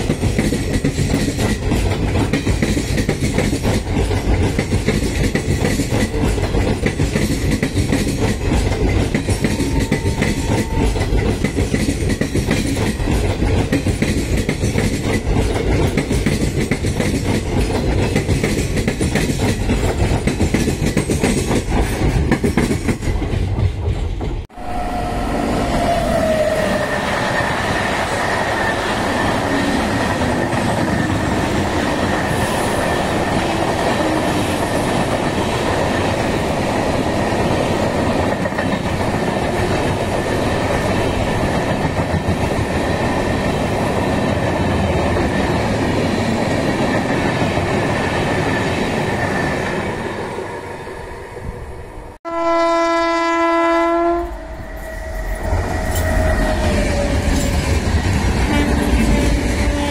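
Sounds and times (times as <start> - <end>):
train wheels clickety-clack: 0.0 - 24.5, 26.7 - 50.1, 55.2 - 59.9
locomotive horn blast: 52.2 - 55.1, 58.4 - 59.9.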